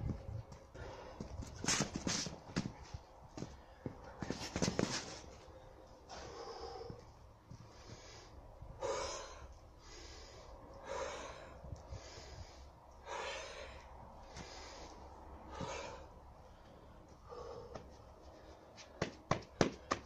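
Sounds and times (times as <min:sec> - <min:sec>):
man breathing hard: 0:00.6 - 0:01.6, 0:05.5 - 0:20.0.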